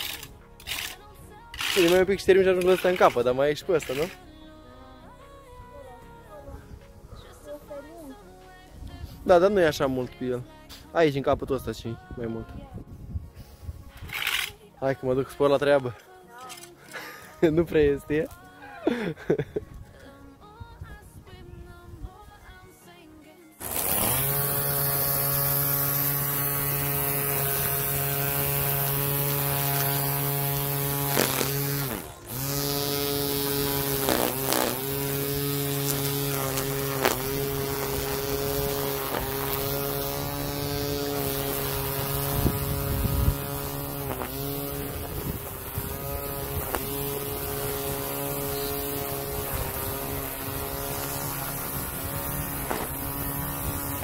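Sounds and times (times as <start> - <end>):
string trimmer cutting grass: 0.0 - 4.4, 13.6 - 15.8, 23.6 - 54.0.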